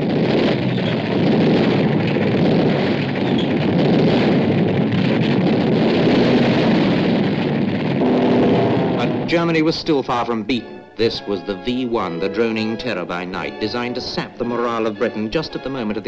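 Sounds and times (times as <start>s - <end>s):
aircraft engines roaring: 0.0s - 16.0s.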